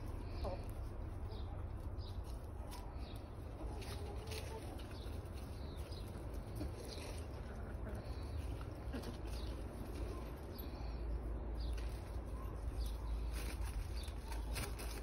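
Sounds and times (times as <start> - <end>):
hens clucking softly: 0.0 - 10.7
low background rumble: 0.0 - 14.6.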